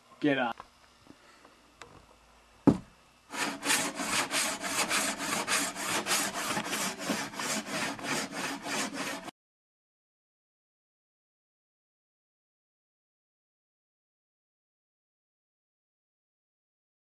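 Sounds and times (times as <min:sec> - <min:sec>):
sharp knock: 0:02.7 - 0:02.9
handsaw sawing cardboard: 0:03.3 - 0:09.3.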